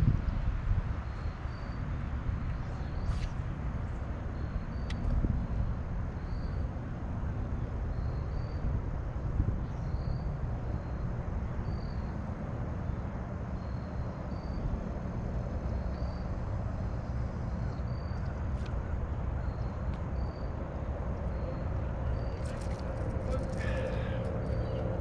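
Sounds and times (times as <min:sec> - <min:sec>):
wind buffeting microphone: 0:00.0 - 0:12.7.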